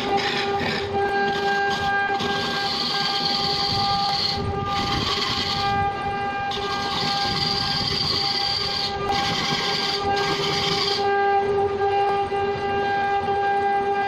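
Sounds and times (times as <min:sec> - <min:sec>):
gouge rasping on spinning wood: 0:00.0 - 0:05.8, 0:06.5 - 0:11.1
wood lathe whining: 0:00.0 - 0:11.2.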